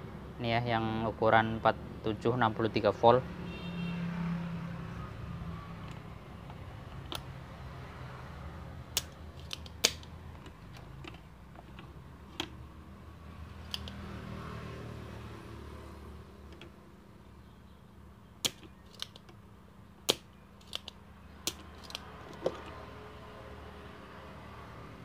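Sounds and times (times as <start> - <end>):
desoldering pump clicking: 20.1 - 22.6.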